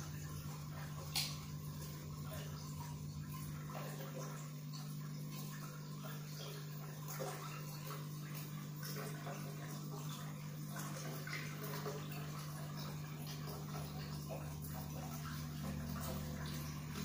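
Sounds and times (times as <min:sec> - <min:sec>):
aquarium pump humming: 0:00.0 - 0:17.0
water trickling and splashing: 0:00.0 - 0:17.0.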